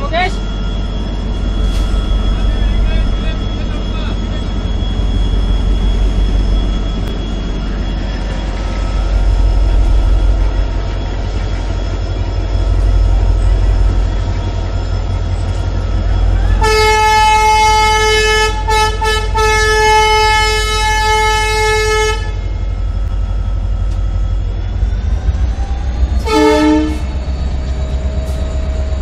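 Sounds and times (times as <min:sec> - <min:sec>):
locomotive engine rumbling: 0:00.0 - 0:29.0
locomotive horn: 0:16.4 - 0:22.5, 0:26.2 - 0:27.2.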